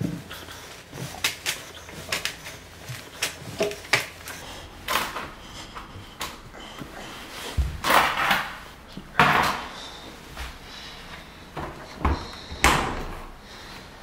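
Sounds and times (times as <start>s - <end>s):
knocks and thumps: 7.5s - 9.8s.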